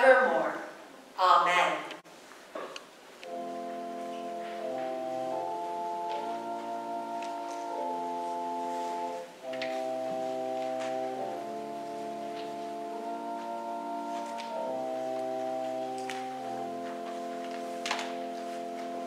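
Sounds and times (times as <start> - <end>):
organ playing held chords: 3.2 - 19.0.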